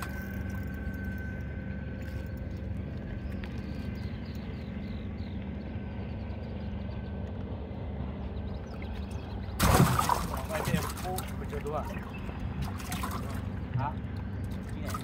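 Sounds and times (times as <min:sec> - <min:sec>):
boat engine rumble and hum: 0:00.0 - 0:15.0.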